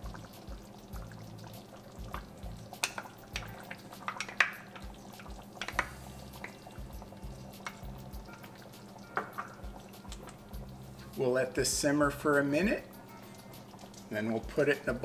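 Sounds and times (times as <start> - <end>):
clicks taps and wet splats: 0.0 - 10.7, 12.6 - 15.0
faint background music: 0.0 - 15.0
wooden spoon stirring in pan: 2.1 - 8.5.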